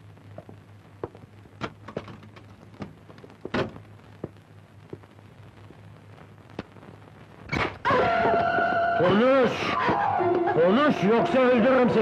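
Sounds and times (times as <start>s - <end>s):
steady low hum: 0.0s - 7.9s.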